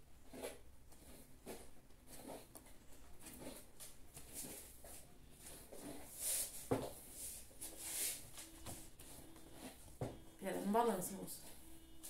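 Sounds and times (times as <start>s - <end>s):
hairbrush strokes through hair: 3.2s - 9.8s.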